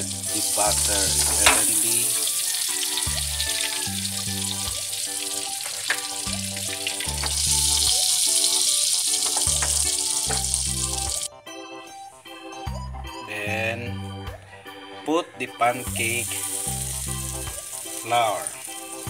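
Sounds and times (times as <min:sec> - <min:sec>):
butter sizzling in a frying pan: 0:00.0 - 0:11.3, 0:16.0 - 0:19.0
background music with bass line: 0:00.0 - 0:19.0.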